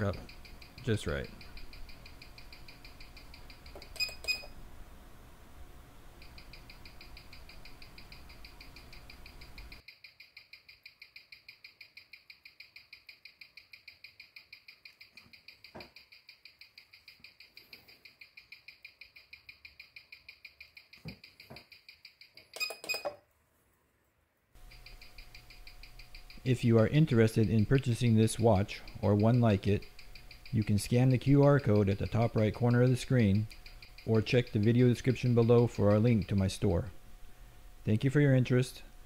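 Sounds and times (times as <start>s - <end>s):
pocket watch ticking: 0.0s - 4.5s, 6.2s - 22.6s, 24.6s - 36.6s
short electronic beeps: 4.0s - 4.5s.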